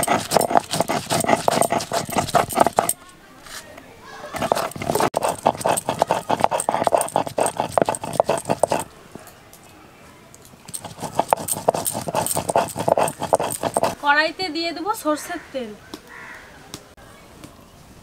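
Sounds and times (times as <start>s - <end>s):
stone grinding on stone: 0.0s - 3.0s, 4.3s - 8.9s, 10.7s - 14.0s.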